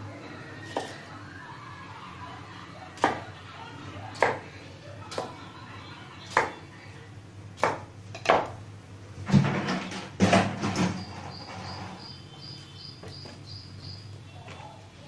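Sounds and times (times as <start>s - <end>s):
faint high chirps: 11.0s - 14.7s.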